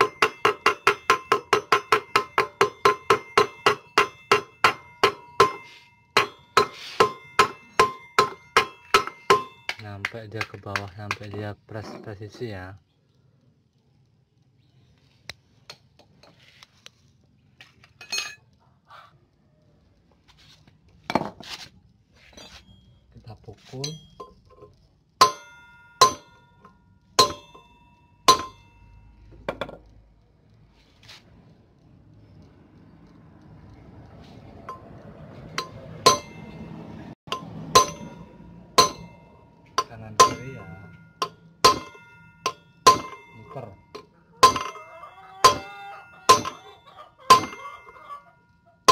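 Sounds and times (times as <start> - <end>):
ringing metal clink: 0.0 - 10.0, 18.0 - 18.4, 23.8 - 29.7, 35.6 - 48.9
hammer striking steel drift: 0.0 - 11.2, 25.2 - 29.2, 34.6 - 47.9.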